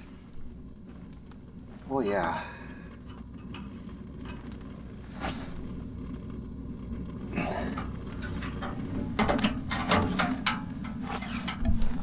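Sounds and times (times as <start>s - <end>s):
steady low rumble: 0.0s - 12.0s
handling knocks and rustling: 7.7s - 12.0s.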